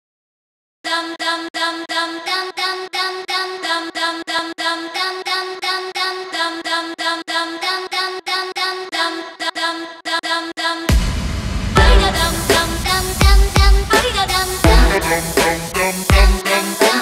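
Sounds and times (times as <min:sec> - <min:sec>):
chopped voice-like melodic sample: 0:13.8 - 0:17.0.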